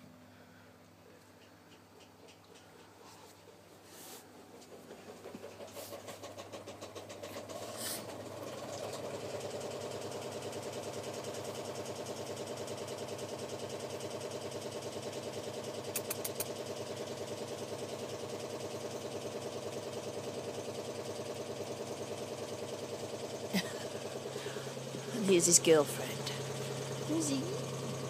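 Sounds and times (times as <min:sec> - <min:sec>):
sharp clicks: 0:15.9 - 0:16.6.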